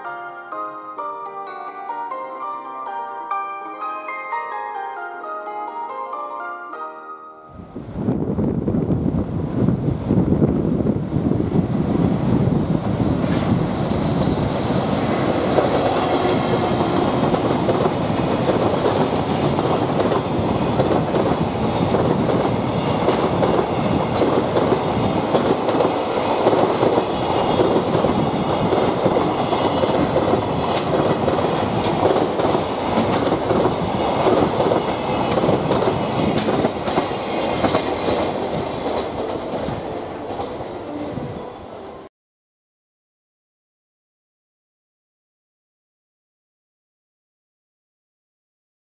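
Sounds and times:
freight train wheels on rail: 7.8 - 42.0.

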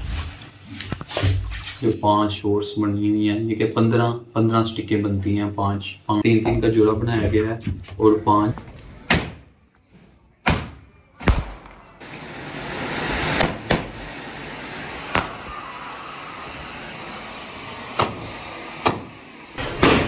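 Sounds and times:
firework bangs: 10.5 - 16.9, 17.7 - 20.0
firework hissing: 12.0 - 20.0.

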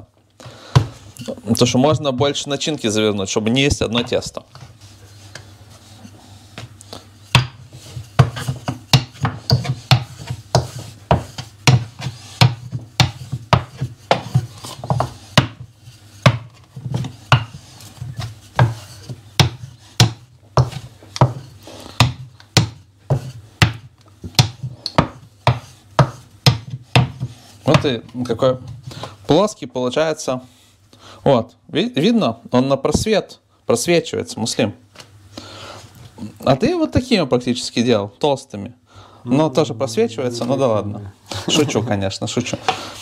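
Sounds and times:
soft rubbing of rolling pin: 4.0 - 29.4
rolling pin knocking on board: 7.3 - 17.6, 18.2 - 28.0.

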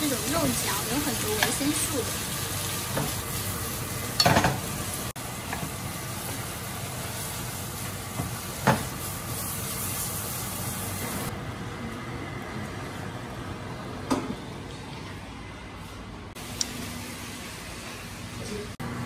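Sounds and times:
food sizzling in skillet: 0.0 - 11.3.

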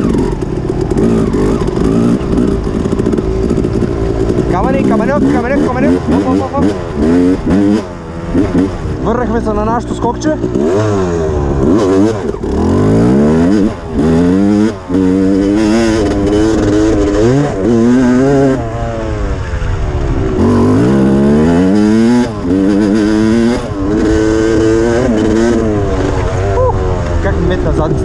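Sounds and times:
dirt bike engine revving: 0.0 - 28.0.

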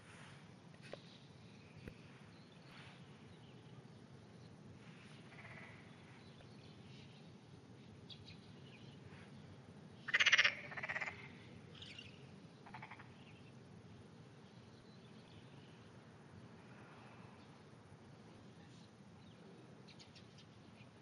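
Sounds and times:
frog croaking: 5.3 - 5.8, 10.1 - 11.4, 12.6 - 13.2.

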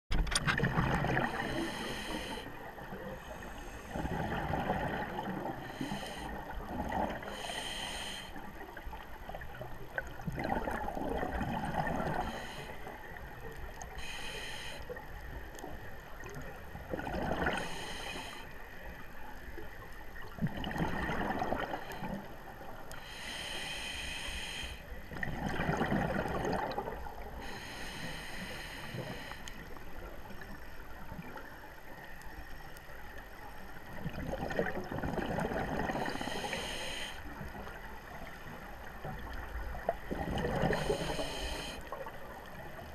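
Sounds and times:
exhaled bubbles rushing: 0.6 - 1.5, 3.9 - 5.5, 10.1 - 12.2, 16.9 - 17.6, 20.4 - 21.9, 25.1 - 27.1, 34.0 - 36.0, 40.0 - 40.9
regulator hissing inhale: 1.2 - 4.1, 5.6 - 6.5, 7.2 - 8.5, 12.1 - 13.2, 13.9 - 15.0, 17.6 - 18.6, 22.9 - 24.9, 27.4 - 29.8, 36.0 - 37.4, 40.6 - 42.0.

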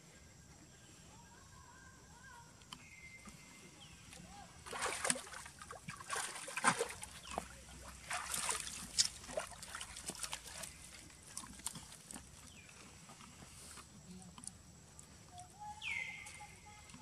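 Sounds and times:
water splashing and sloshing: 3.2 - 17.0
water trickling: 4.2 - 13.2.

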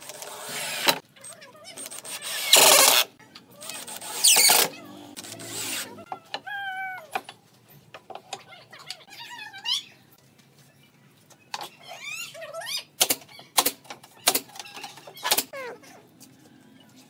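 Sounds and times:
cordless drill driving screws: 1.8 - 5.9.

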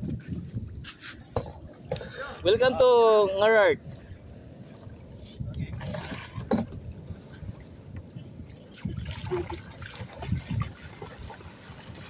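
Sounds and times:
seawater splashing: 3.2 - 12.0.

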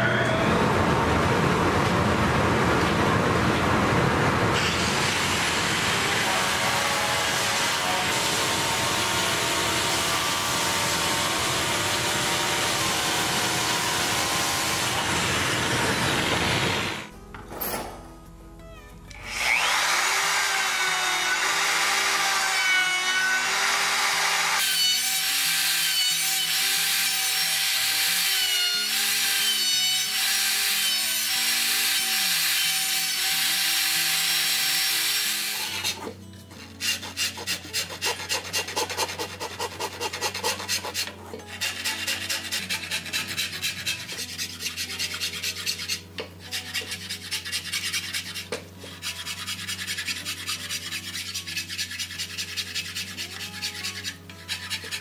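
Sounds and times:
electric router whining: 19.1 - 22.5
hand file scraping wood: 35.3 - 55.0.

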